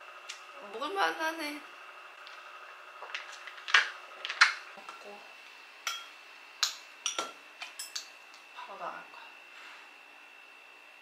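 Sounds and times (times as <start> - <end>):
utensils clinking against bowl: 5.8 - 8.2.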